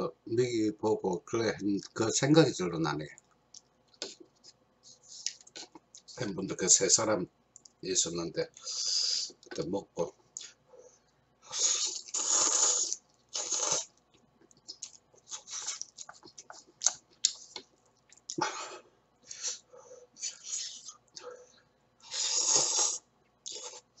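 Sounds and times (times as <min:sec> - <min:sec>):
man slurping noodles: 0:11.5 - 0:13.9, 0:22.0 - 0:23.9
chewing: 0:11.6 - 0:18.4
small mouth clicks: 0:11.6 - 0:18.4.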